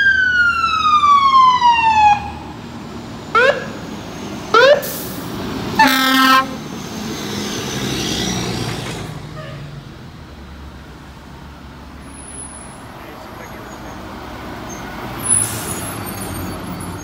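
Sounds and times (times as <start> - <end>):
truck engine driving past: 1.4 - 17.0
fire engine horn blast: 5.8 - 6.6.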